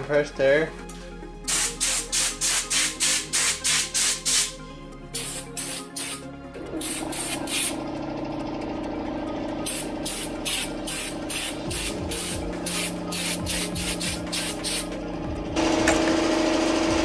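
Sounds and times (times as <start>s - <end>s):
air blow gun hissing blasts: 5.2s - 6.2s, 6.8s - 7.8s, 9.7s - 14.9s.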